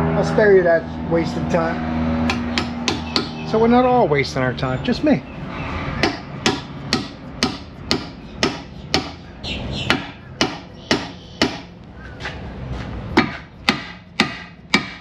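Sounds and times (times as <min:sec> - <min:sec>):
hammer striking metal: 0:02.3 - 0:03.4, 0:06.0 - 0:09.2, 0:09.9 - 0:11.7, 0:13.2 - 0:15.0.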